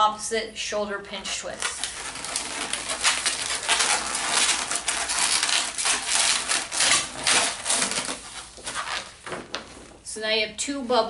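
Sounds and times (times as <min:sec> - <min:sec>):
balloons rubbing and squeaking: 0:01.4 - 0:10.1.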